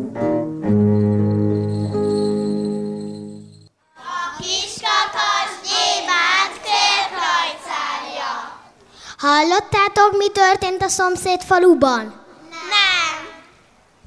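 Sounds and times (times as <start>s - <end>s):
children singing unaccompanied: 3.9s - 8.8s.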